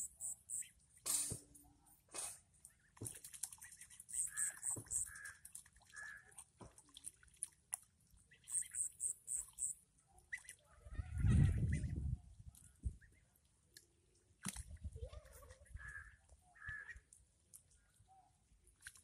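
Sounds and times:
short high chirps: 0.0 - 0.7
ducks calling: 4.1 - 5.4.

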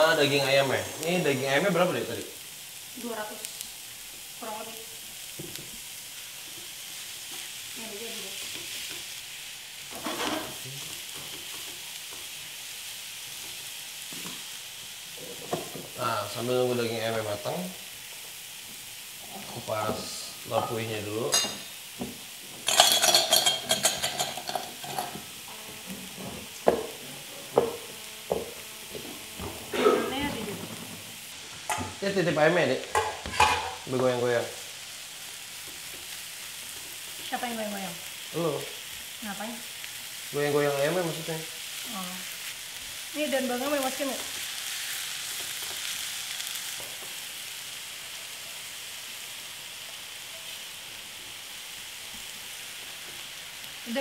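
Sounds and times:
meat sizzling in a frying pan: 0.0 - 54.0
spatula scraping a pan: 9.9 - 10.6
metal bowls clinking: 22.6 - 26.8, 32.9 - 33.8.

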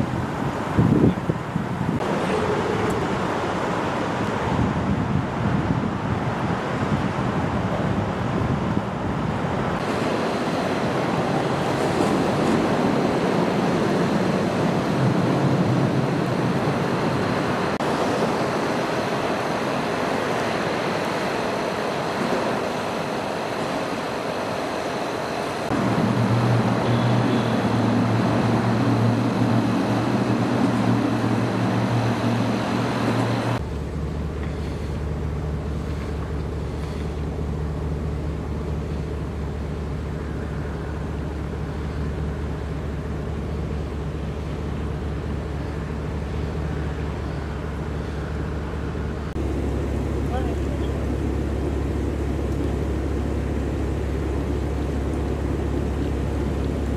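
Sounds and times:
heavy rain and floodwater: 0.0 - 56.9
car engine idling: 17.8 - 56.9.

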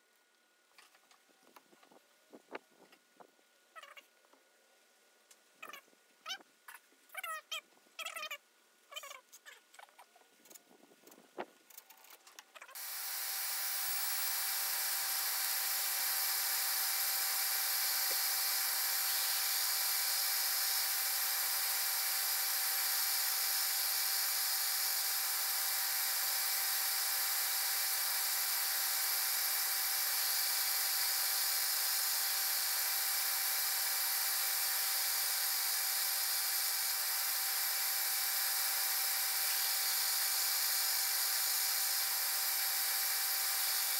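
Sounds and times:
disc sander sanding wood: 12.8 - 43.9.

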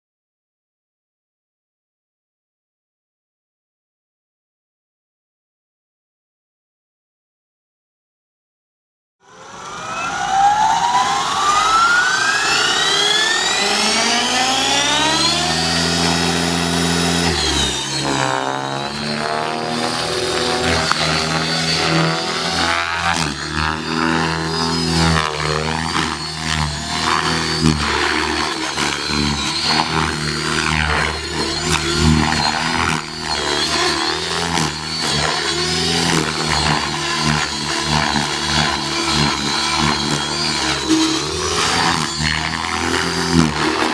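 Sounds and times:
rc helicopter motor and rotor whine: 9.2 - 43.9.

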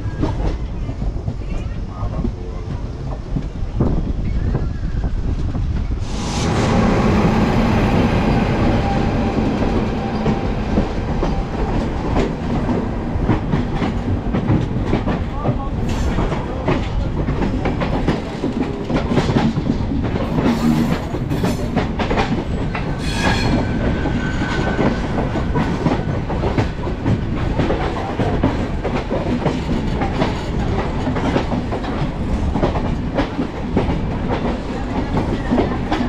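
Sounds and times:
train rumble: 0.0 - 36.0
train wheels clattering over rail joints: 8.8 - 36.0.

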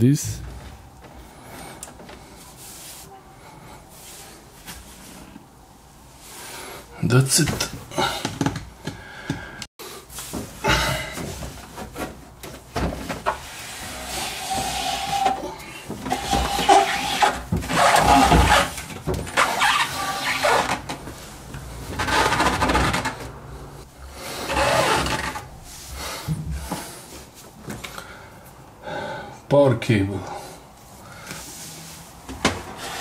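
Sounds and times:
computer case scraping on tile: 16.1 - 18.8.

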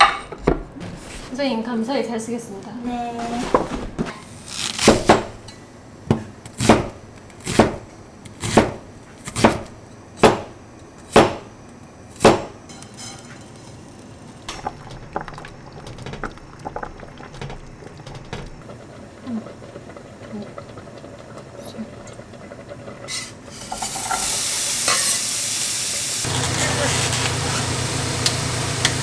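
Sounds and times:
cleaver chopping on wooden board: 8.4 - 10.5, 11.1 - 11.4, 12.2 - 12.5.

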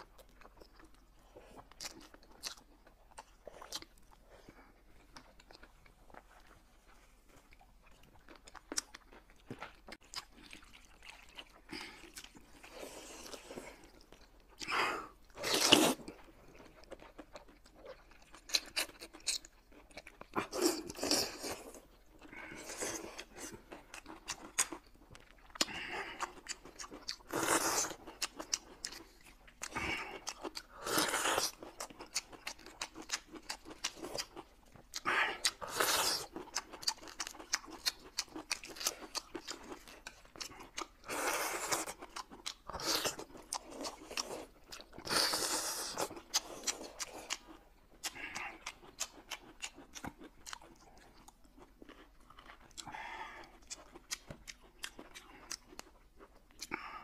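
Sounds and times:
chewing and wet mouth clicks: 7.3 - 12.5, 45.9 - 57.0.

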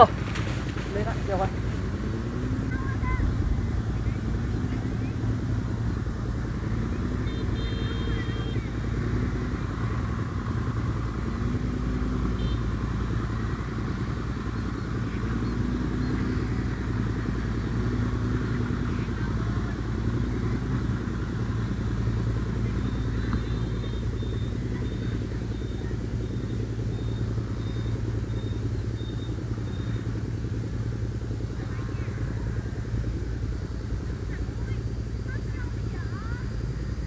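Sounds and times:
wind buffeting microphone: 0.0 - 7.3
faint high chirp: 6.8 - 10.0, 12.2 - 30.6.

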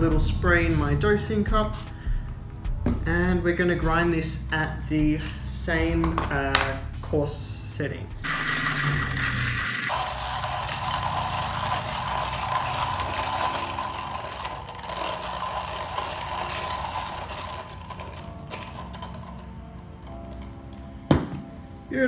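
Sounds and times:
hand coffee grinder crunching beans: 8.2 - 20.4.

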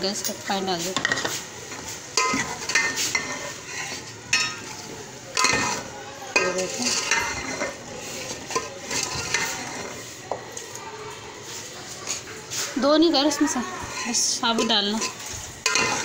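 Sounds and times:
food sizzling: 0.0 - 16.0
metal spoon scraping pot: 2.2 - 10.1, 12.0 - 16.0.

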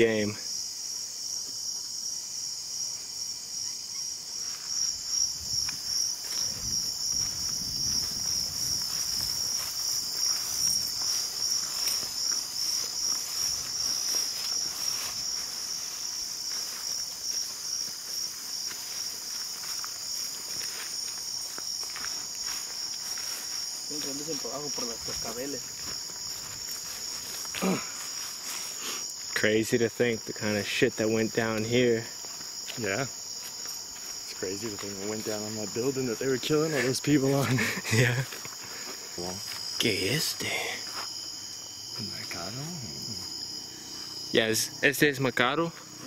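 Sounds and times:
crickets trilling: 0.0 - 46.0
soft scuffs and knocks: 5.4 - 28.8.

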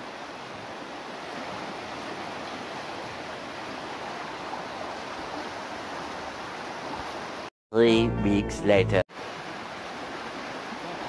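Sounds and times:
river rushing over rocks: 9.2 - 11.0.

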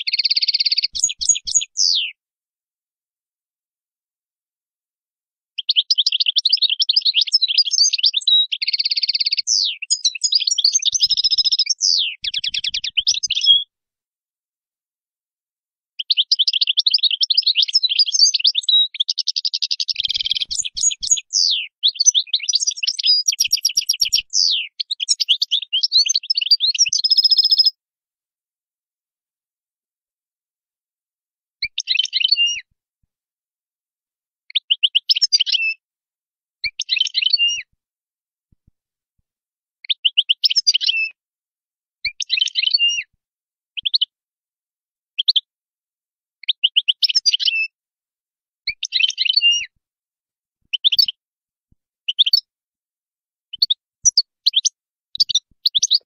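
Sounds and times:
goldfinch singing: 0.1 - 2.2, 5.6 - 13.7, 16.0 - 27.8, 31.7 - 32.6, 36.7 - 37.6, 42.2 - 43.0, 48.8 - 49.7, 50.7 - 51.1, 52.1 - 52.5, 53.5 - 56.0.

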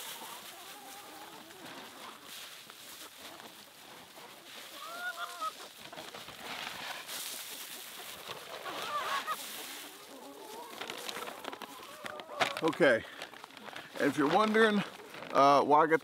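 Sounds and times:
chickens clucking: 0.0 - 15.2
short pitched chicken calls: 4.7 - 5.6, 8.6 - 10.8.

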